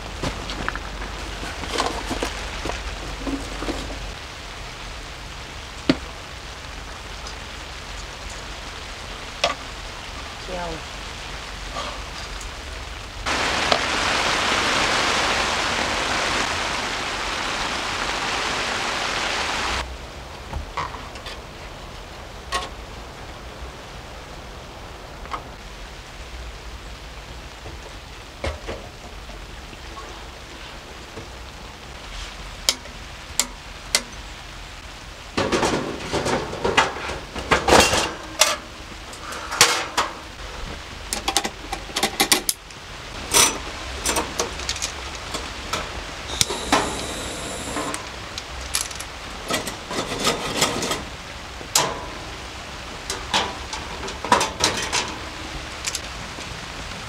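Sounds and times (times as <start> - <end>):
metal camping gear clattering: 0.0 - 4.2, 35.4 - 40.2, 48.7 - 52.2, 53.0 - 55.3
rain hissing: 0.0 - 57.0.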